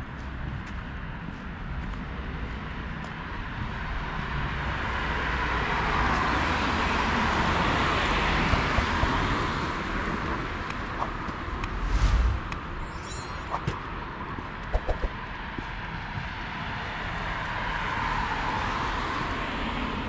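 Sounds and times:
vehicle passing by: 11.6s - 13.2s.

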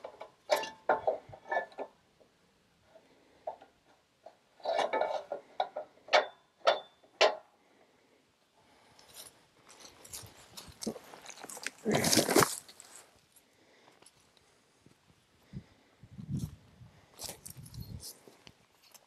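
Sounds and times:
wood slab scraping: 10.2s - 13.1s.

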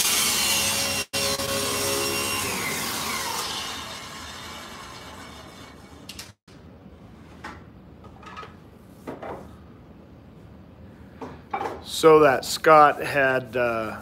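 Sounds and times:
table saw whirring down: 0.0s - 6.4s.

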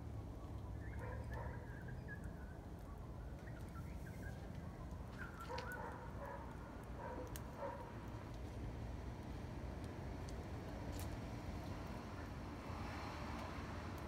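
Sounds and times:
fire popping in a grill: 0.0s - 14.0s
low outdoor rumble: 0.0s - 14.0s.

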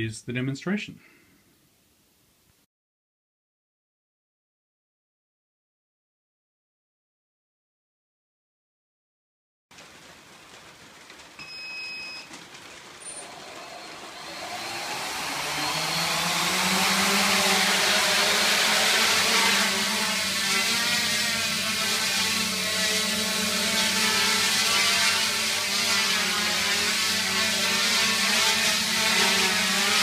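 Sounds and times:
short beep: 11.4s - 12.3s
quadcopter motors humming: 13.0s - 30.0s.

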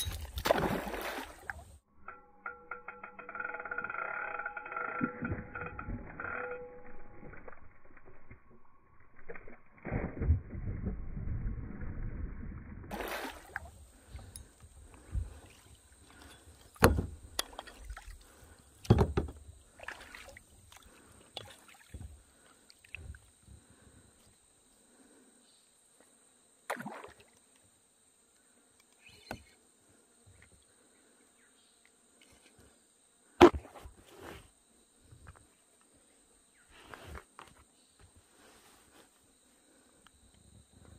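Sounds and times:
fish splashing at the surface: 12.9s - 13.7s.

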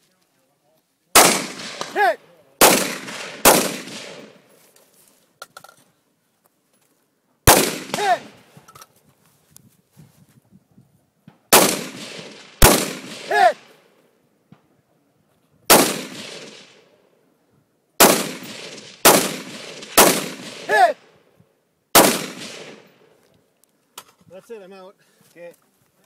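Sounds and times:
rifle shots with echo: 1.2s - 4.4s, 7.5s - 8.4s, 11.5s - 13.7s, 15.7s - 16.9s, 18.0s - 20.8s, 21.9s - 23.1s.

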